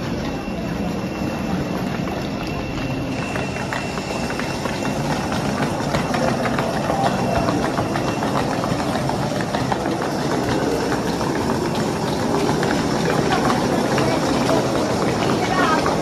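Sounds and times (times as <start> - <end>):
faint murmur of voices: 0.0 - 16.0
suitcase wheels rolling: 0.0 - 16.0.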